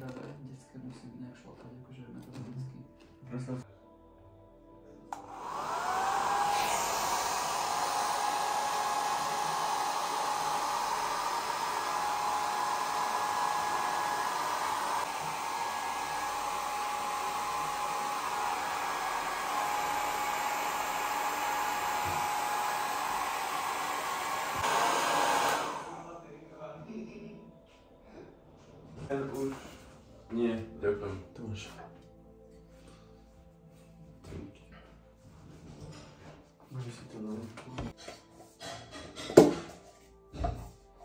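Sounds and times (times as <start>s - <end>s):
hair dryer blowing: 5.1s - 26.2s.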